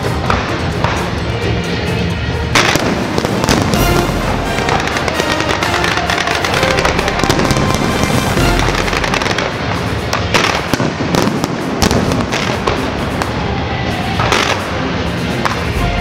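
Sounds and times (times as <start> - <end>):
fireworks crackling and popping: 0.0 - 16.0
loud firework bangs: 2.6 - 14.8.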